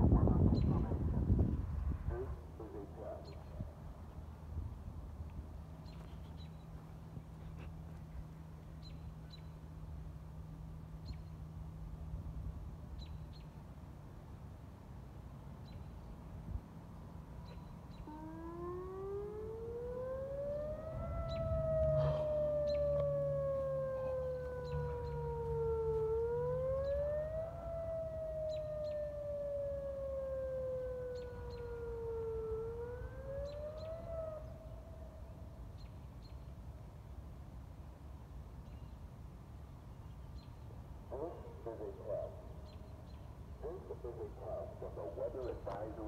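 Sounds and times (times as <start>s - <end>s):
warning siren wailing: 16.4s - 35.8s.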